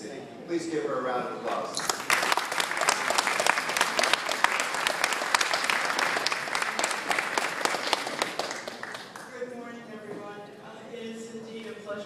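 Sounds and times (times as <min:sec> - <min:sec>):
audience applauding: 0:01.8 - 0:09.4.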